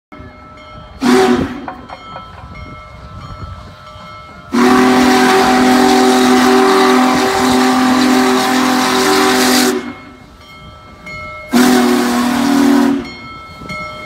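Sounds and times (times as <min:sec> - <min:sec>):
steam locomotive whistle blasts: 0:01.0 - 0:01.8, 0:04.5 - 0:10.3, 0:11.5 - 0:13.3
steam hissing: 0:02.4 - 0:13.8.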